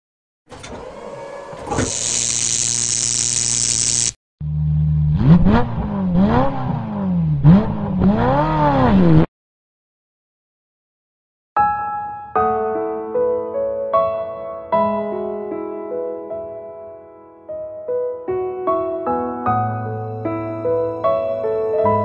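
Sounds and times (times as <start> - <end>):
car engine idling and revving: 4.4 - 9.3.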